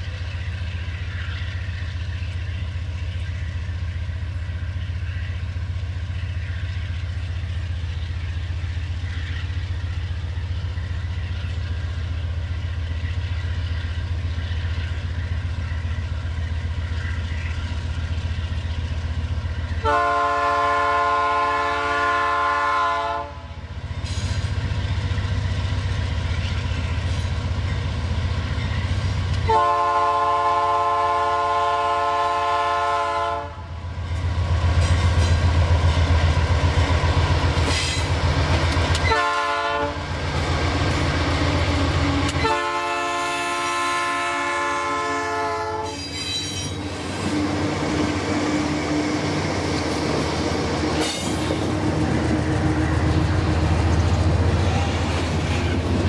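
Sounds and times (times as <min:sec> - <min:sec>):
locomotive engine rumble: 0:00.0 - 0:56.0
train air horn: 0:19.8 - 0:23.5, 0:29.4 - 0:33.7, 0:39.0 - 0:40.0, 0:42.3 - 0:46.3.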